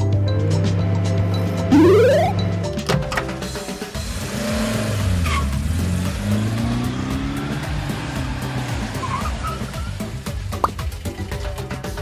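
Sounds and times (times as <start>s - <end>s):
cartoon car engine revving: 0.4s - 2.6s
tire squeals: 5.0s - 5.8s, 8.0s - 10.2s.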